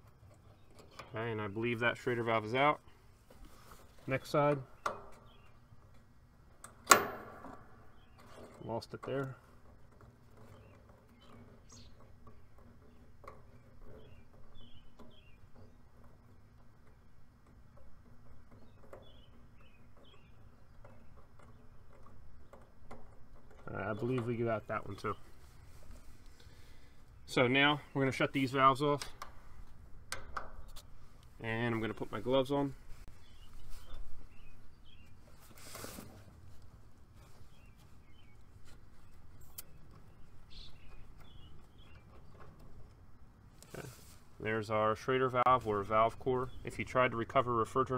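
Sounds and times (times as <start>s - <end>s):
small birds chirping: 0.0s - 6.8s, 7.5s - 47.9s
low steady hum: 0.0s - 47.9s
bird chirps: 4.5s - 5.8s, 7.8s - 8.4s, 10.4s - 15.8s, 18.5s - 21.8s, 31.4s - 35.6s, 37.2s - 42.5s
handling rustle: 23.0s - 27.3s, 30.5s - 44.4s.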